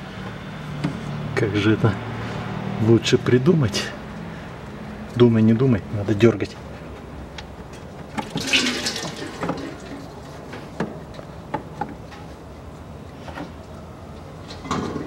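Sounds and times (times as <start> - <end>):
fluid gushing: 8.2 - 10.2.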